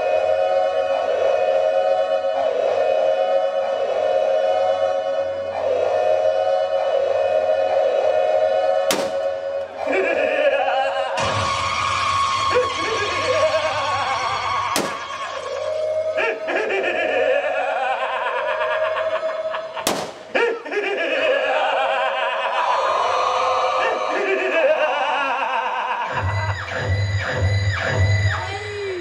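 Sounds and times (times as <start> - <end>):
backing music: 8.5 - 16.8
sharp bangs: 8.9 - 9.5, 14.8 - 15.4, 19.9 - 20.4
man vocalising: 9.8 - 11.2, 16.2 - 17.9, 20.3 - 20.8.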